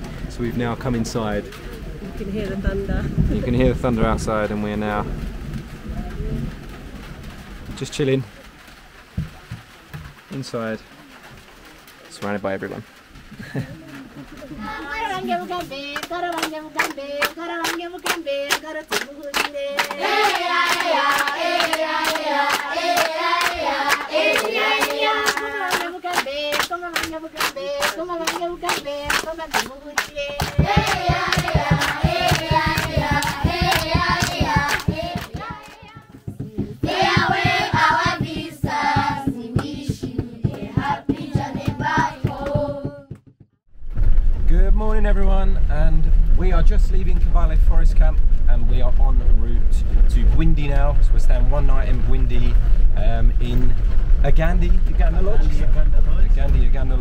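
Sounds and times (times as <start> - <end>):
rhythmic hand clapping: 13.5 - 43.4
children and women singing: 14.5 - 43.2
low thumps: 27.1 - 57.0.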